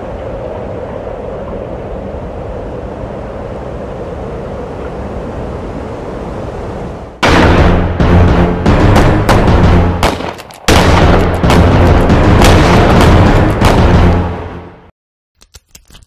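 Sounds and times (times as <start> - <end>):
steady wind-like rushing noise: 0.0 - 7.4
loud music with booming drums: 7.2 - 10.1, 10.8 - 14.4.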